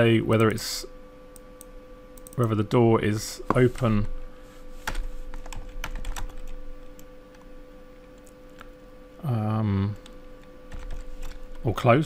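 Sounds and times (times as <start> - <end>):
steady low hum: 0.0 - 12.0
computer keyboard keystrokes: 4.9 - 7.4, 10.0 - 11.5
man humming mmm: 9.2 - 10.0.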